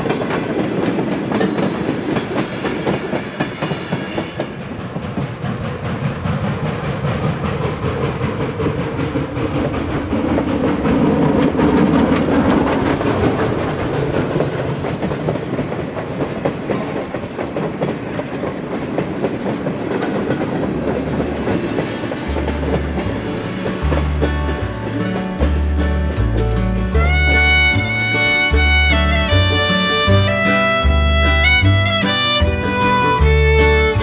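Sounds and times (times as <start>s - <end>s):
steam locomotive chuffing: 0.0s - 34.0s
wheels clicking over rail joints: 0.0s - 34.0s
music with low bass notes: 23.0s - 34.0s.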